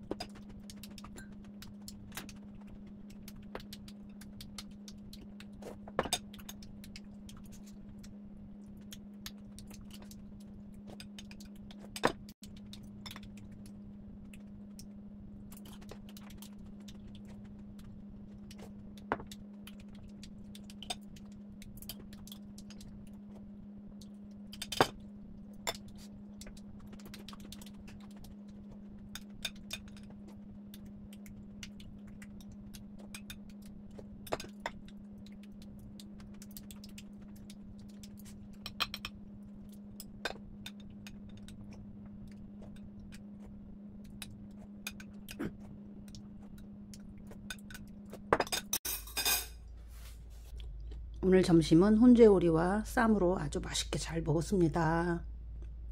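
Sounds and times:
steady low hum: 0:00.0 - 0:55.9
utensils clinking against ceramic bowls: 0:48.4 - 0:49.5.

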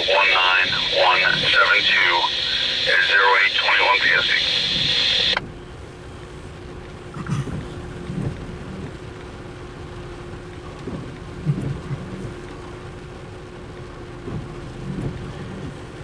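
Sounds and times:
rain falling on a car: 0:00.0 - 0:04.3, 0:05.4 - 0:16.0
windshield wipers thumping: 0:10.6 - 0:12.8, 0:13.7 - 0:16.0.

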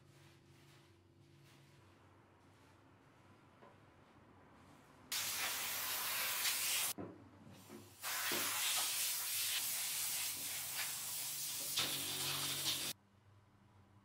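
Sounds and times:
compressed air blow gun hissing: 0:05.1 - 0:07.0, 0:08.0 - 0:13.0.

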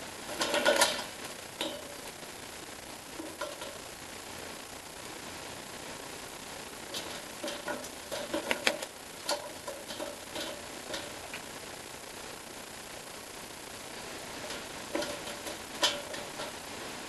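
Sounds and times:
steady background hiss: 0:00.0 - 0:17.0
beak tapping on metal bowl: 0:07.0 - 0:11.2.

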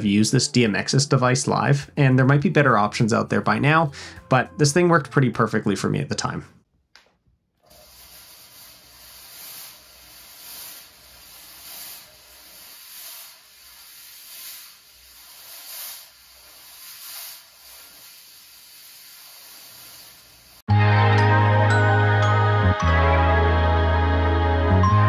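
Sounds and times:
fog machine hissing: 0:07.6 - 0:20.7.

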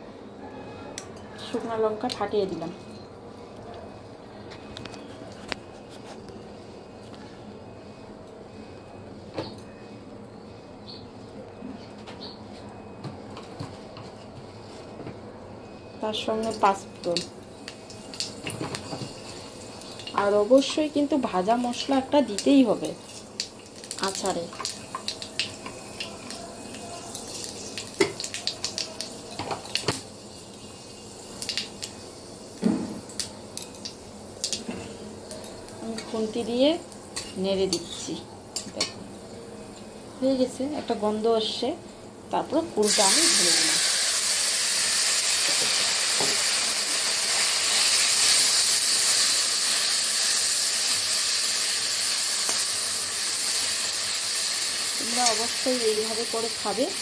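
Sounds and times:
seeds spluttering in hot oil: 0:16.4 - 0:38.9, 0:42.8 - 0:57.0.

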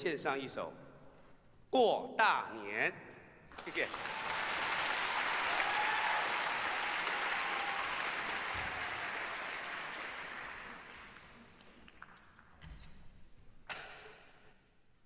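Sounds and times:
audience applauding: 0:03.5 - 0:12.2.

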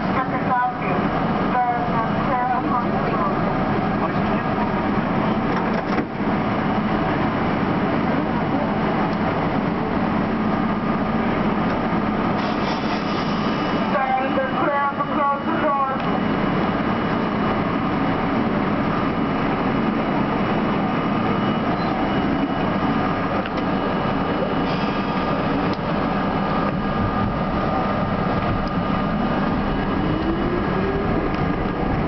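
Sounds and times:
subway car equipment hum: 0:00.0 - 0:32.0
traction motors whining: 0:11.6 - 0:32.0.

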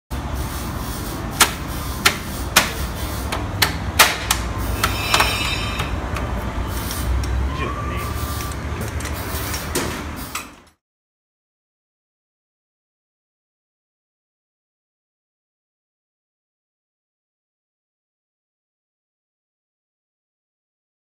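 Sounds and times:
knocks and clicks on wheel cover: 0:01.4 - 0:06.3.

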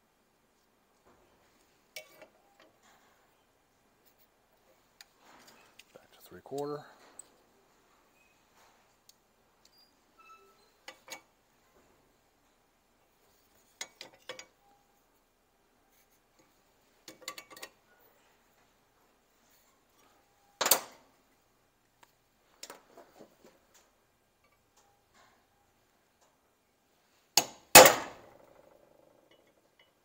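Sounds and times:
metal tools clicking and clinking: 0:01.9 - 0:03.1, 0:09.7 - 0:11.3, 0:13.6 - 0:14.8, 0:17.0 - 0:17.8, 0:29.2 - 0:30.0
sharp metal clank: 0:27.7 - 0:28.3.

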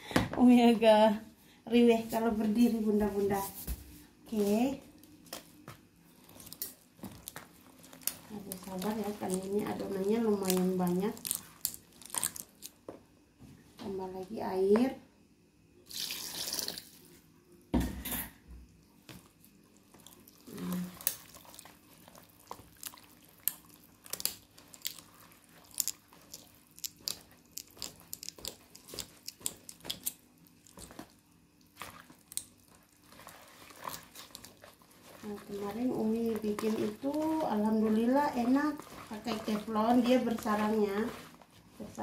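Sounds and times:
water pouring into batter: 0:15.9 - 0:17.0
whisk beating batter in bowl: 0:31.7 - 0:42.0.

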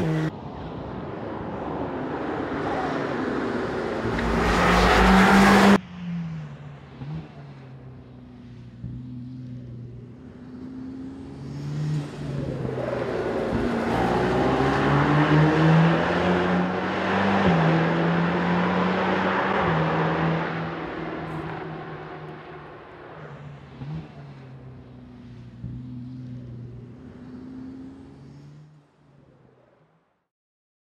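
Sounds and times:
sports car engine driving past: 0:02.3 - 0:10.2.

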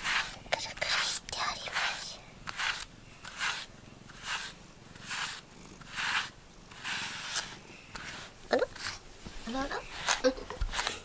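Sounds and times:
cat purring: 0:03.8 - 0:10.8.

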